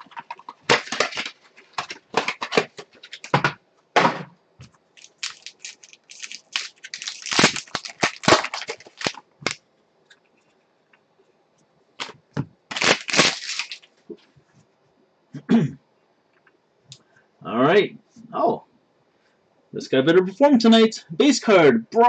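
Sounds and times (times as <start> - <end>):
foil pack crinkling and tearing: 0.0 - 3.4, 5.0 - 9.6, 12.7 - 13.9.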